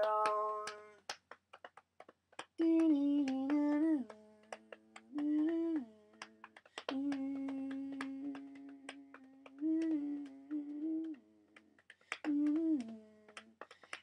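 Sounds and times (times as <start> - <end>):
person humming: 2.7 - 11.3.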